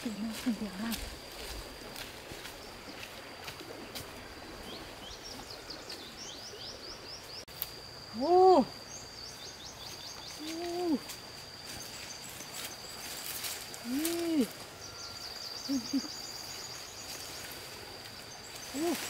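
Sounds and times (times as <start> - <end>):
high-pitched insect tone: 0.0 - 19.0
hoot-like calls: 13.8 - 16.3.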